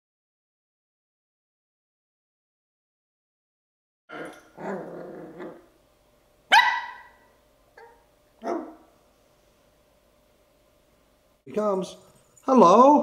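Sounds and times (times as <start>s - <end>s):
puppy barking: 4.1s - 5.7s, 6.5s - 8.9s.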